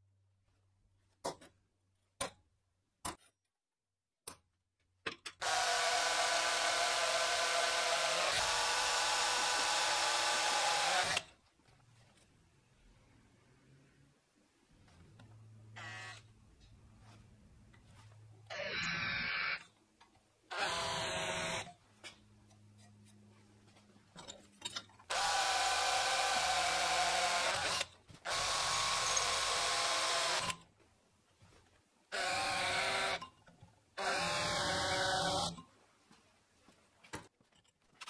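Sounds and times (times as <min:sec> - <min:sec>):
cordless drill drilling into steel: 0:05.4 - 0:11.3, 0:15.8 - 0:16.2, 0:20.5 - 0:21.7, 0:25.1 - 0:30.6, 0:32.1 - 0:33.2, 0:34.0 - 0:35.6.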